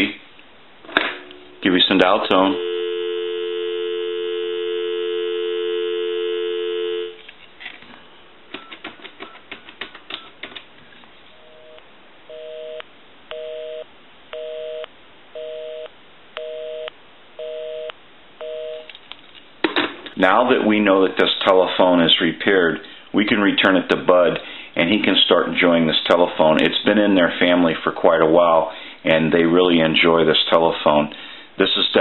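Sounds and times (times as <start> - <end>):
telephone busy signal: 2.4 - 7.2, 11.6 - 18.9
telephone dial tone: 2.6 - 7.2
keypad clicks and tones: 8.5 - 10.5.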